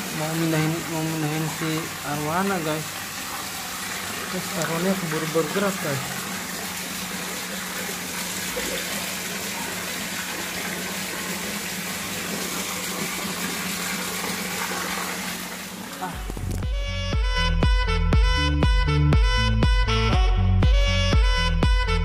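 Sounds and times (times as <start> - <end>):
water running into pond: 0.0 - 16.8.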